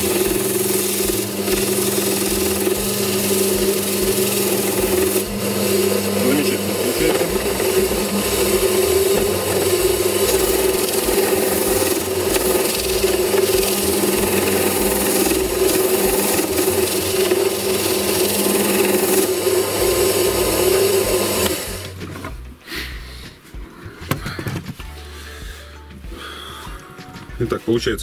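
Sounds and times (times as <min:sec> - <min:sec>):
sanding drum rasping on wood: 0:00.0 - 0:22.1
drill press motor hum: 0:00.0 - 0:22.4.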